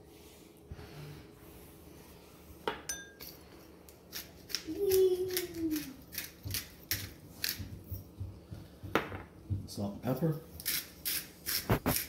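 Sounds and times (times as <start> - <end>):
ringing clink: 2.9 - 3.4
pepper grinder grinding: 3.9 - 8.1, 10.5 - 12.0.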